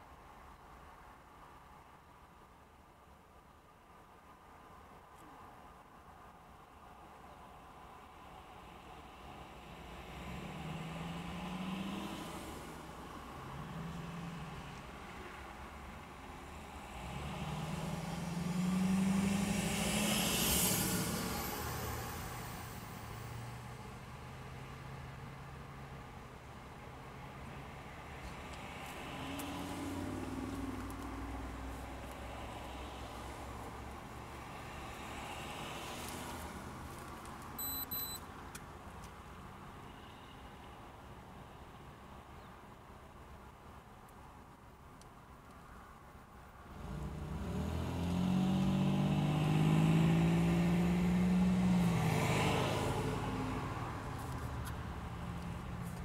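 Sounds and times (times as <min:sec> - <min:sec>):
low hum of traffic: 0:00.0 - 0:56.0
pickup truck driving past: 0:16.8 - 0:23.8, 0:46.8 - 0:54.2
high electronic beeps: 0:37.6 - 0:38.2.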